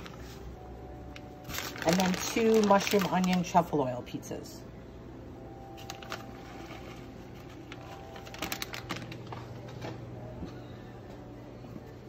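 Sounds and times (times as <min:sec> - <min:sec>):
steady low hum: 0:04.0 - 0:12.0.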